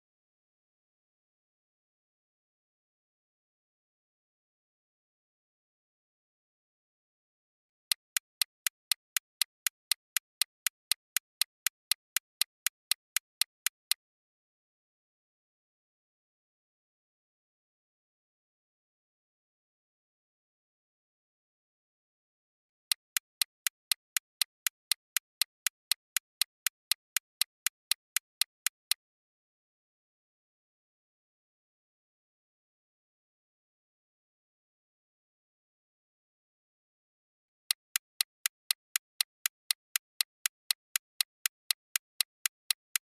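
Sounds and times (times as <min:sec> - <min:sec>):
clock-like timer ticking: 0:07.9 - 0:14.0, 0:22.9 - 0:29.0, 0:37.7 - 0:43.0.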